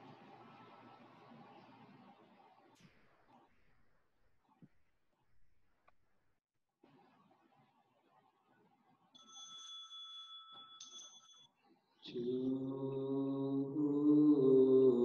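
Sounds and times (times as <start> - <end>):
small bell ringing: 9.2 - 11.6.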